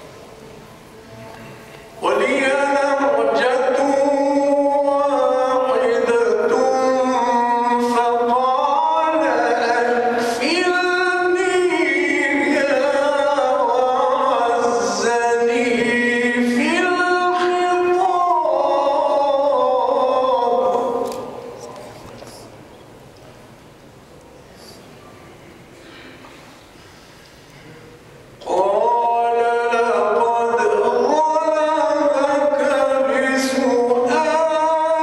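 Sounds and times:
man chanting melodic recitation: 1.3s - 22.5s, 28.4s - 35.0s.

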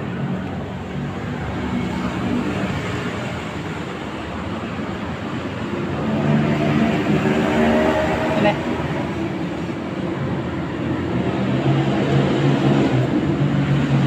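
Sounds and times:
city traffic rumble: 0.0s - 14.0s.

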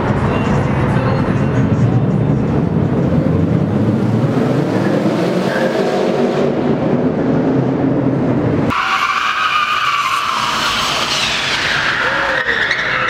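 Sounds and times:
car engine revving: 0.2s - 13.0s
tires squealing: 1.3s - 6.6s, 8.6s - 13.0s.

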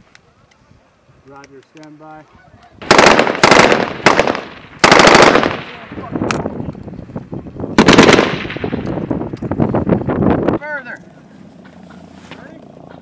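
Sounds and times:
automatic gunfire bursts: 2.8s - 5.8s, 7.8s - 8.7s.

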